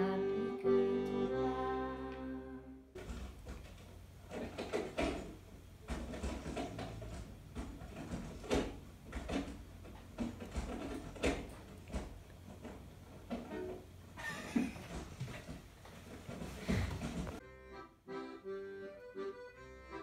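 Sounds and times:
handling knocks and clicks: 3.0s - 13.9s.

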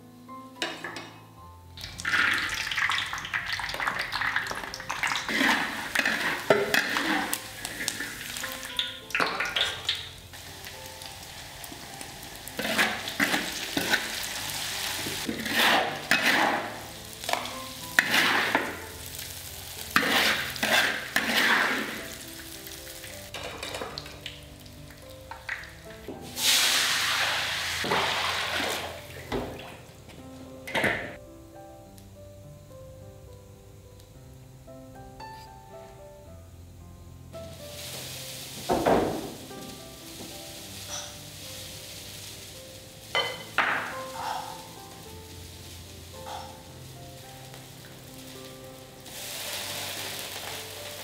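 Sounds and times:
hot oil sizzling in a wok: 1.2s - 29.3s, 31.6s - 51.0s.

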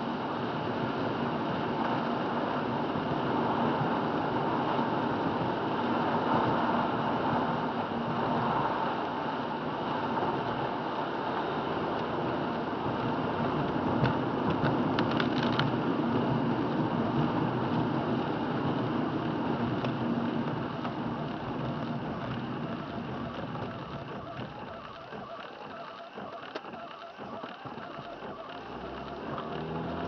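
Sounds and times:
car engine hum: 0.0s - 30.0s
sharp clicks: 20.6s - 30.0s.

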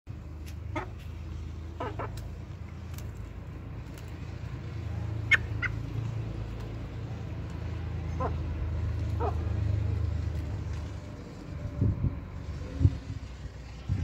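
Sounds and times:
chickens calling: 0.6s - 2.4s, 5.1s - 6.1s, 7.9s - 9.7s.

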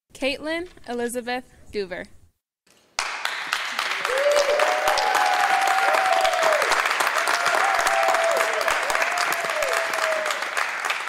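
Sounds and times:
audience applauding: 3.0s - 11.0s
audience cheering: 3.2s - 11.0s.

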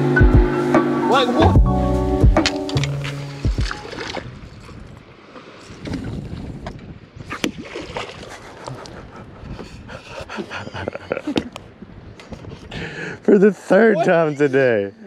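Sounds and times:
water lapping around boat: 2.4s - 14.6s
wind on microphone: 3.4s - 13.2s.

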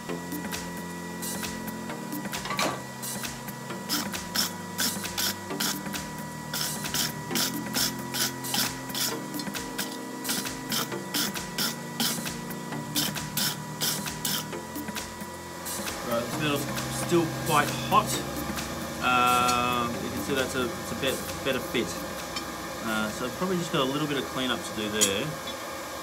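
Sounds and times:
steady hum: 0.0s - 26.0s
hammer striking steel on anvil: 25.0s - 25.3s.

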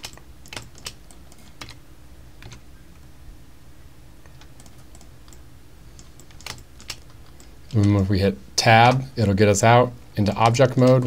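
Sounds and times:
keyboard and mouse clicks: 0.0s - 1.8s, 2.4s - 3.1s, 4.2s - 5.4s, 6.0s - 8.0s, 8.8s - 9.4s, 10.2s - 11.0s
faint low hum: 0.0s - 11.0s.

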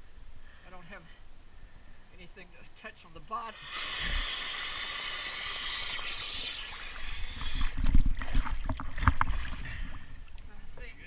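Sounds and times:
water splashing and hissing: 3.4s - 9.9s.

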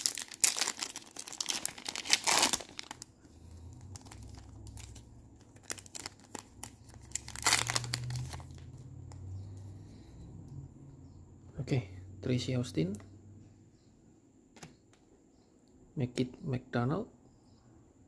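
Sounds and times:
foil wrapper crinkling: 0.0s - 8.7s.

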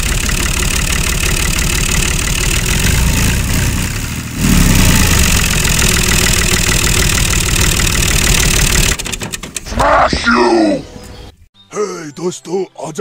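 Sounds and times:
tractor engine idling: 0.0s - 4.3s, 4.9s - 9.8s.

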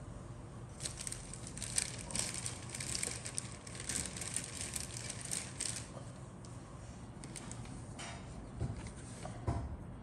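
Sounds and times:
plastic packaging crinkling: 0.7s - 6.1s, 7.2s - 7.9s.

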